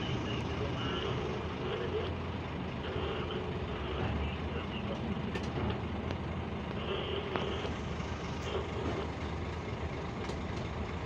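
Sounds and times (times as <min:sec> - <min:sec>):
diesel engine drone from cab: 0:00.0 - 0:11.0
cab clicks and rattles: 0:05.0 - 0:06.8.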